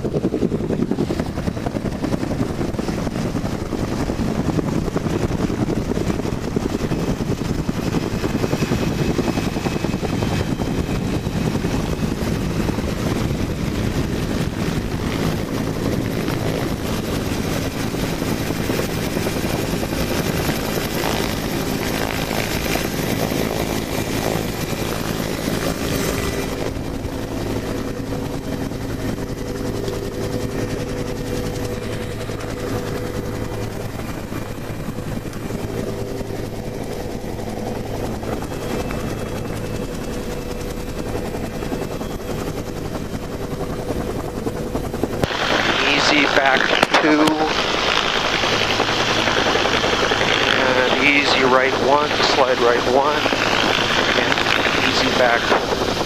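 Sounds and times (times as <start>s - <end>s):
helicopter rotor and turbine: 0.0s - 56.0s
rushing downwash: 45.2s - 56.0s.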